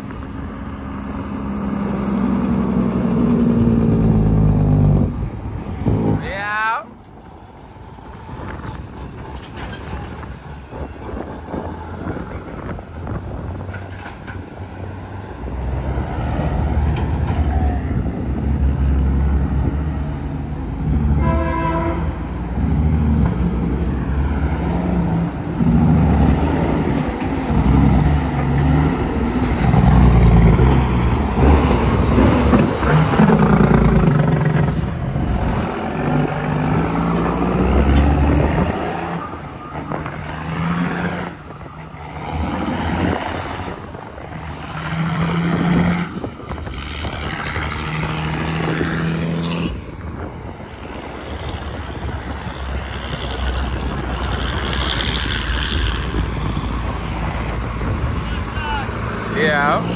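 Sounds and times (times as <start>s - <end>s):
cars passing: 0.0s - 59.9s
diesel trucks driving past: 0.0s - 59.9s
horn toot: 21.1s - 22.2s.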